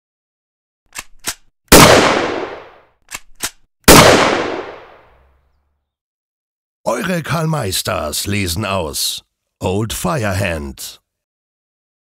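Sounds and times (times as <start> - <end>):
quick clicks: 0.9 - 1.5, 3.0 - 3.7
gunshot with echoing tail: 1.7 - 2.8, 3.9 - 5.0.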